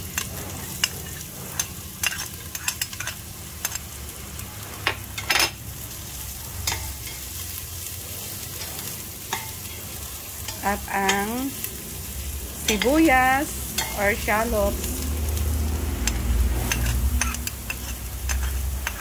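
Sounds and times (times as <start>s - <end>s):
spatula scraping a pot: 0.0s - 3.8s, 16.0s - 19.0s
garlic sizzling in hot oil: 0.0s - 19.0s.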